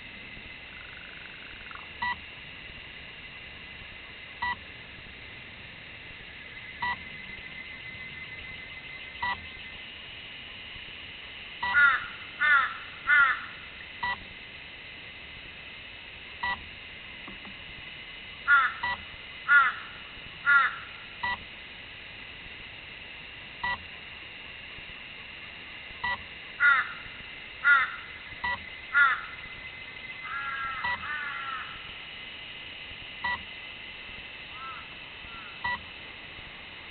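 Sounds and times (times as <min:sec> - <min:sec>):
faint high drone: 0:00.0 - 0:36.9
crow cawing: 0:11.7 - 0:13.6, 0:18.5 - 0:18.9, 0:19.5 - 0:21.0, 0:26.6 - 0:28.2, 0:28.9 - 0:29.4, 0:30.2 - 0:31.8, 0:34.6 - 0:35.6.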